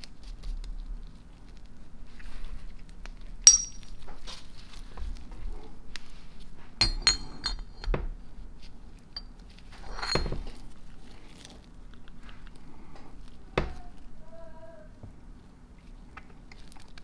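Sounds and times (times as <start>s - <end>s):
steel parts clinking: 3.4s - 3.9s, 6.8s - 7.9s, 9.2s - 10.6s.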